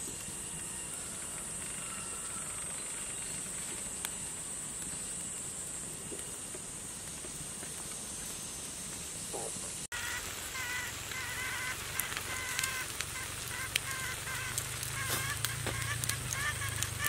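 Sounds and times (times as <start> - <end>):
high insect drone: 0.0 - 17.0
wood fire crackling: 0.0 - 17.0
bird calling: 9.3 - 17.0.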